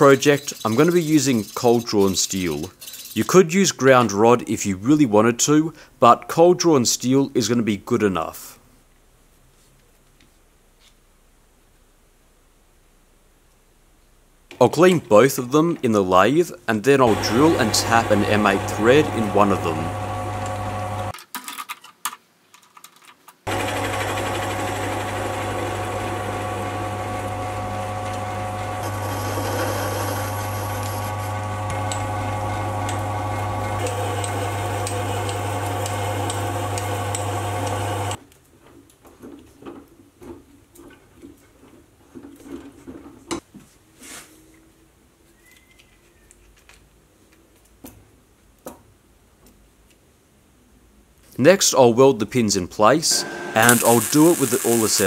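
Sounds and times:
drill boring into steel: 17.1s - 21.1s, 23.5s - 38.2s, 53.1s - 55.0s
lathe motor humming: 17.1s - 21.1s, 23.5s - 38.2s, 53.1s - 55.0s.

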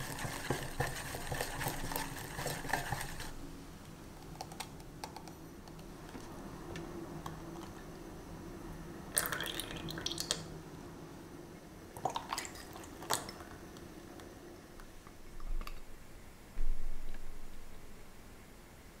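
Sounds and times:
milk pouring into saucepan: 9.2s - 10.4s.

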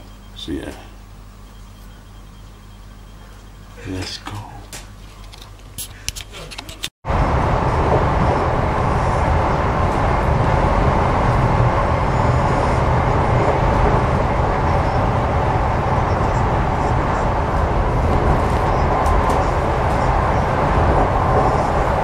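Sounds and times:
train running rumble: 7.1s - 22.0s.

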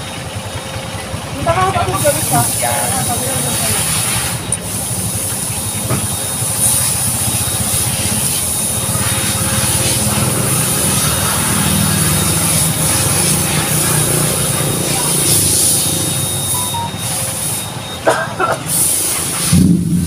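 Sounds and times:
engine running nearby: 0.0s - 20.0s
road traffic: 0.0s - 20.0s.

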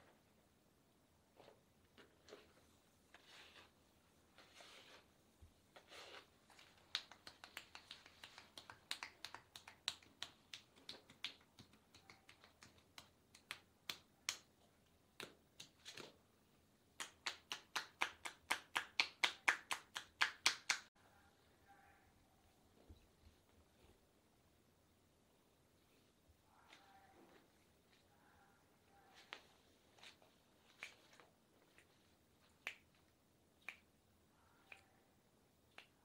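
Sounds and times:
hands tapping on body: 6.6s - 14.5s, 16.9s - 20.9s.

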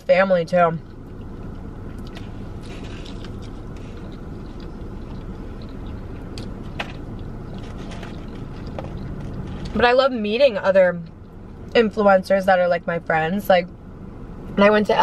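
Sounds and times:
low hum inside car: 0.0s - 15.0s
soft chewing: 0.8s - 9.8s.

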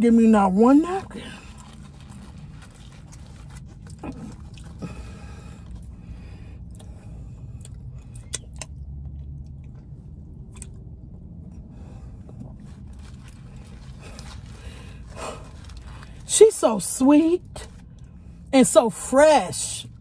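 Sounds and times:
low steady hum: 0.0s - 20.0s
person chewing food: 1.5s - 5.9s, 6.6s - 15.9s.

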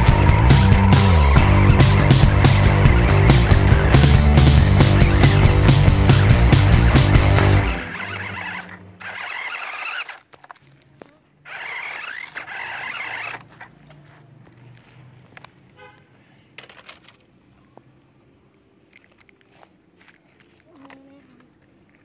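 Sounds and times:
faint outdoor background: 0.0s - 22.0s
toy car whirring over gravel: 6.2s - 14.9s.

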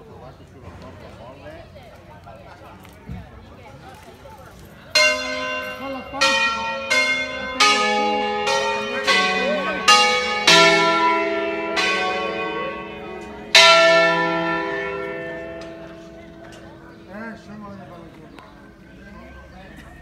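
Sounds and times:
church bells ringing melody: 4.9s - 18.8s.

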